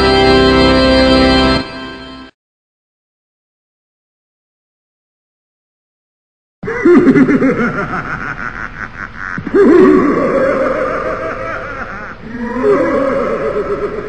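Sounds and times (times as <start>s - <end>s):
laughter: 6.6s - 14.0s.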